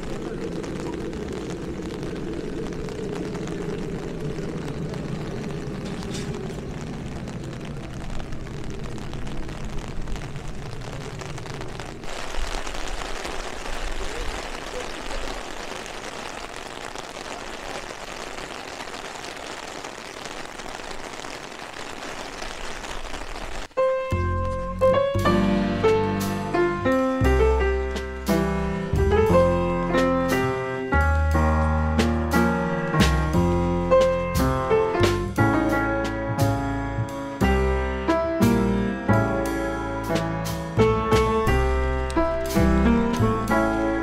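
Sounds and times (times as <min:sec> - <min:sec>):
wind rumbling on microphone: 0:00.0 - 0:15.4
heavy rain falling: 0:00.0 - 0:44.0.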